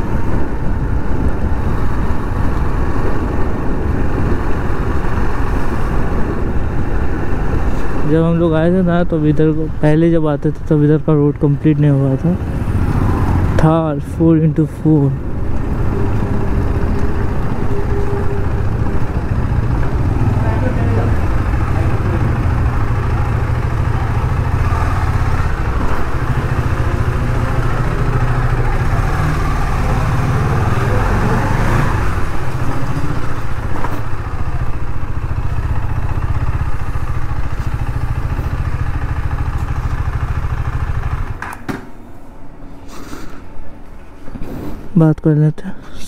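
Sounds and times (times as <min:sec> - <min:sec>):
motorcycle engine at low revs: 0:11.2 - 0:42.0.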